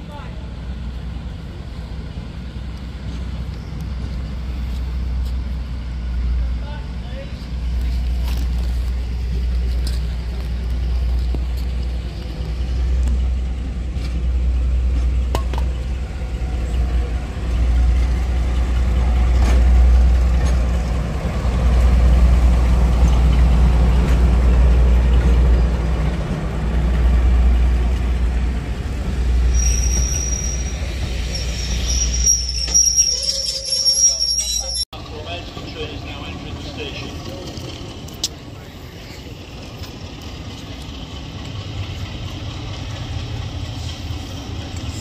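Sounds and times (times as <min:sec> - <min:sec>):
diesel locomotive rumbling: 0:00.0 - 0:45.0
high-pitched squeal: 0:29.5 - 0:34.9.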